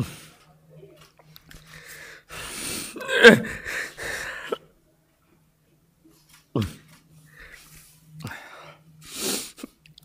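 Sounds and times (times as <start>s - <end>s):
man sniffling: 1.7s - 4.6s, 7.4s - 9.8s
man sobbing cry: 3.0s - 4.6s.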